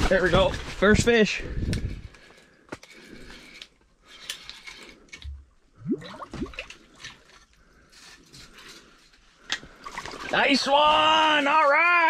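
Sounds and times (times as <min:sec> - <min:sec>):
water dripping and sloshing: 0:05.1 - 0:07.6, 0:09.5 - 0:11.0.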